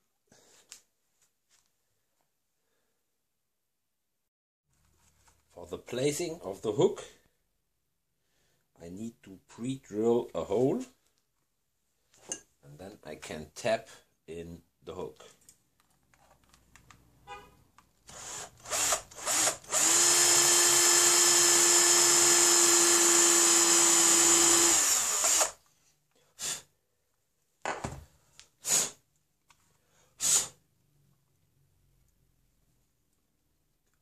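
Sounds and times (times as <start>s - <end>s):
cordless drill drilling wood: 18.1s - 25.6s.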